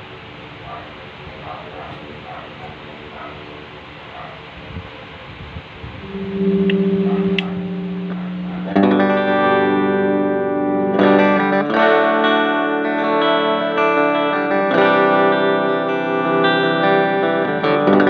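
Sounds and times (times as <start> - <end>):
electric guitar held note: 6.0 - 11.7
electric guitar strummed chords: 6.0 - 18.0.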